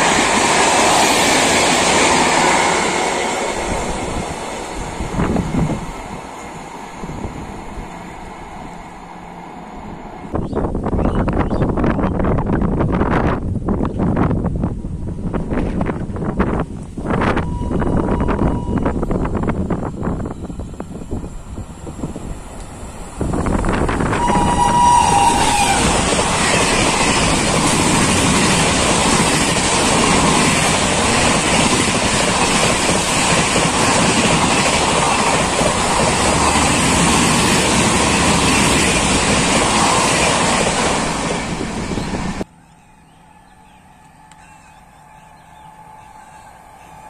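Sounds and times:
train rushing past: 0.0 - 13.4, 14.2 - 47.0
two-tone train horn: 17.2 - 19.2, 23.7 - 26.9, 43.2 - 47.0.

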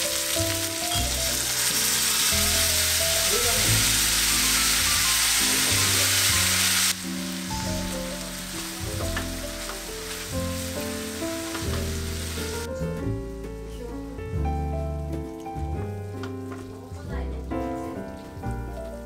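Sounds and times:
food sizzling in oil: 0.0 - 12.7
background music: 0.0 - 19.0.

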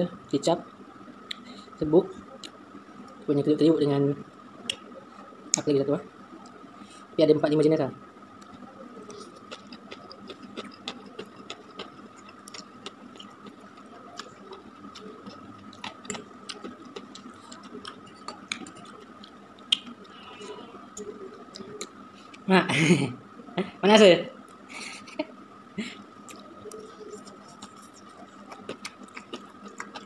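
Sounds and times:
man chewing and slurping noodles: 9.1 - 22.4, 26.3 - 30.0.

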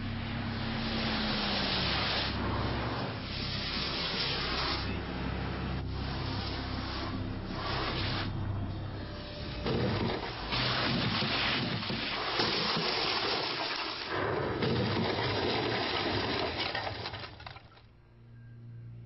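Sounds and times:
water spray rushing: 0.0 - 8.4, 9.4 - 16.7
debris smashing: 9.6 - 17.9.

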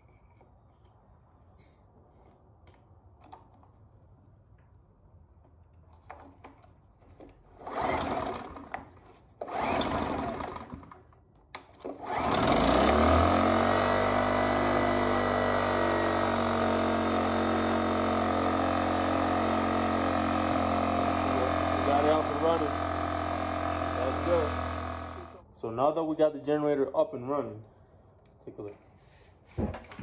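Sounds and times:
recoil starter rope pulls: 6.0 - 11.1, 11.7 - 25.4
small generator engine running: 7.6 - 8.8, 9.4 - 11.0, 11.9 - 25.4.

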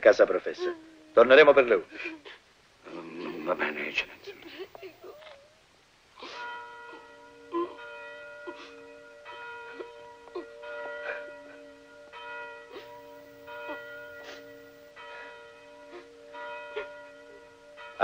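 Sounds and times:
bells ringing: 3.3 - 5.2, 6.4 - 18.0.

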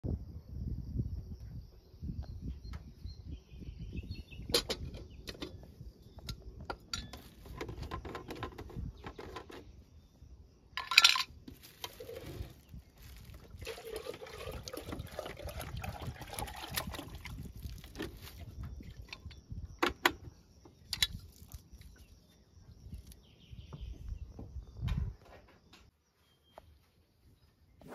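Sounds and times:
containers knocking and clinking: 10.8 - 20.2
water pouring into a metal kettle: 11.8 - 17.9.

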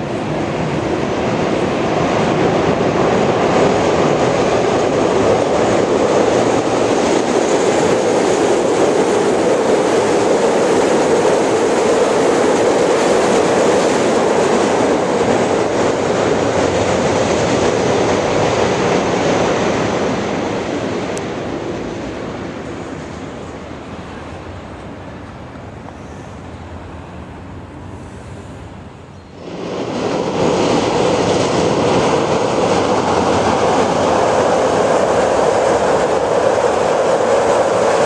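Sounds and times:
train wheels on elevated rails: 0.0 - 38.0.

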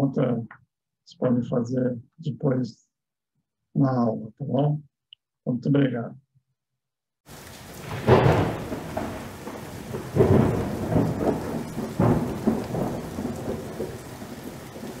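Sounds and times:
heavy rain falling: 7.3 - 15.0
thunder rumbles: 7.3 - 15.0
loud thunder claps: 7.6 - 15.0.

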